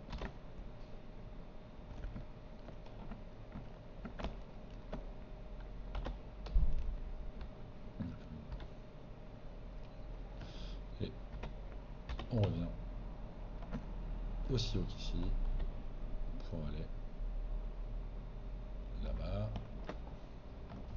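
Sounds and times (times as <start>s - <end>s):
keyboard and mouse clicks: 0.0s - 0.4s, 1.9s - 7.6s, 8.4s - 8.7s, 11.3s - 12.6s, 13.6s - 13.9s, 19.2s - 20.9s
faint steady hum: 0.0s - 20.9s.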